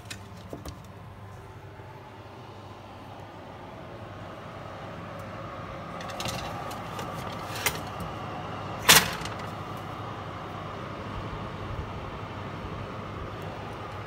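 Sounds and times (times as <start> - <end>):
steady hum: 0.0 - 14.0
metallic clatter of oven rack: 6.0 - 8.1, 8.8 - 9.5.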